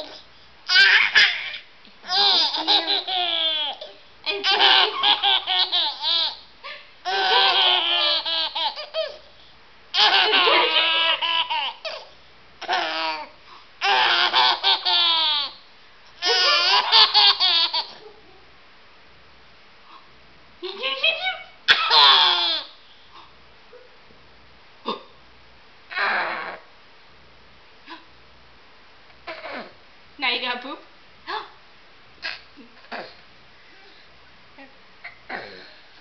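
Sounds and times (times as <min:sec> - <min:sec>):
baby laughing: 0:00.7 - 0:06.4, 0:07.0 - 0:09.2, 0:09.9 - 0:15.6, 0:16.2 - 0:18.1, 0:21.7 - 0:22.7.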